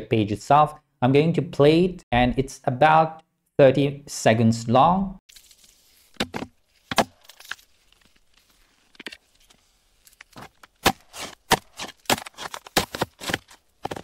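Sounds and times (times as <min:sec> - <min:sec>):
metal tool chipping ice: 0:10.4 - 0:14.0.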